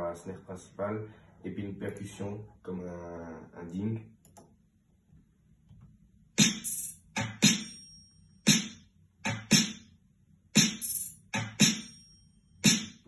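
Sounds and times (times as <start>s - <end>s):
hip-hop drum beat with snare hits: 6.4s - 7.7s, 8.5s - 9.9s, 10.6s - 11.9s, 12.6s - 13.0s.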